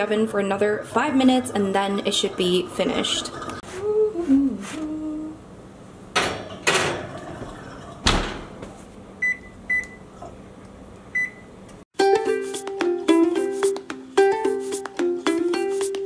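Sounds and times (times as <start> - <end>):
oven door shutting: 8.0 - 8.6
ukulele tune: 12.0 - 16.0.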